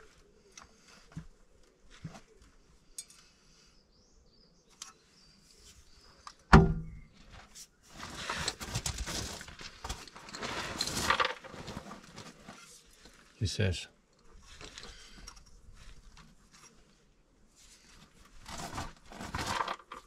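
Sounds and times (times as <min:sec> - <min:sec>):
scraping and rustling: 0:07.1 - 0:13.4, 0:14.4 - 0:20.0.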